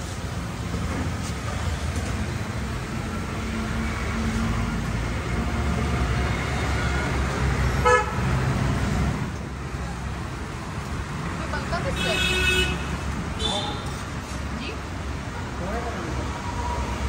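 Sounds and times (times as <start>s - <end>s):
road traffic rumbling: 0.0s - 17.0s
vehicle horn toot: 7.8s - 8.2s, 12.0s - 13.8s.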